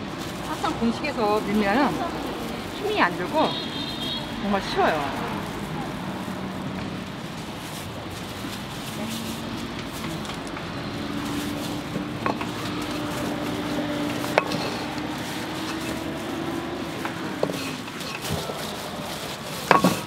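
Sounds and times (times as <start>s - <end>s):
utensils clacking: 0.0s - 20.0s.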